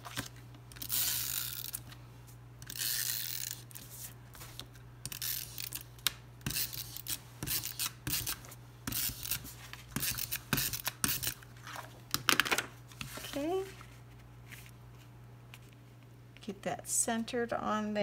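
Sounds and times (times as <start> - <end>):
tape runner rasping on card: 0.0 - 1.9, 5.0 - 11.4.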